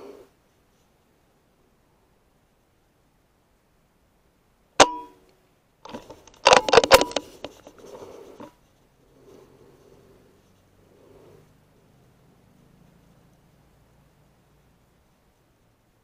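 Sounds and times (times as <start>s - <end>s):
rifle action metallic clicks: 5.8s - 7.5s.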